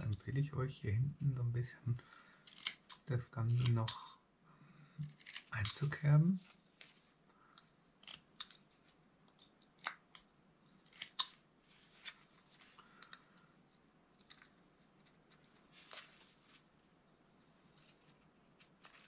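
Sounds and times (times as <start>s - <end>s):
knife cutting wood: 2.4s - 4.0s, 5.0s - 7.0s, 8.0s - 8.6s, 9.4s - 12.2s.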